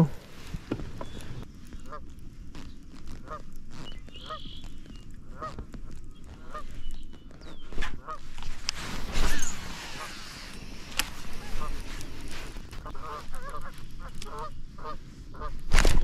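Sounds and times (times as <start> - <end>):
distant geese honking: 1.0 - 2.1, 3.2 - 6.8, 7.9 - 8.3, 9.3 - 15.6.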